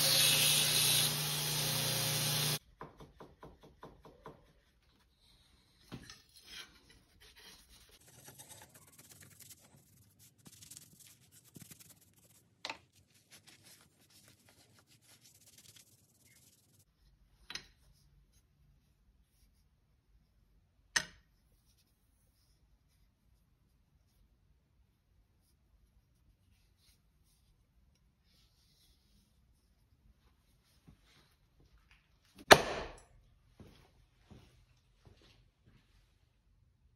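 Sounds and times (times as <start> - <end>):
cloth wiping a blade: 6.4 - 17.0.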